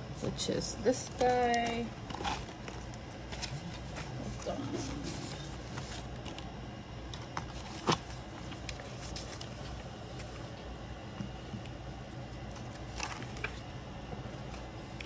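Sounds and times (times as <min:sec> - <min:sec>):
steady low hum: 0:00.0 - 0:15.0
paper pages rustling: 0:07.2 - 0:10.5, 0:12.5 - 0:13.7.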